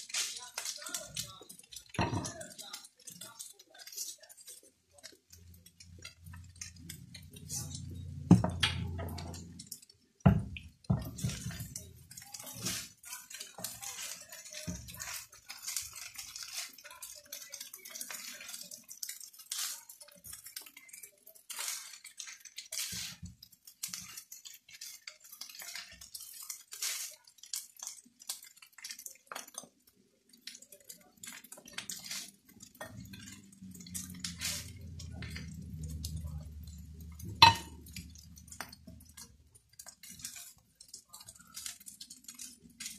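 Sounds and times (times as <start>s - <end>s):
spatulas scraping a wok: 0.0s - 10.0s, 10.6s - 29.7s, 30.9s - 42.9s
faint sizzle: 0.0s - 42.9s.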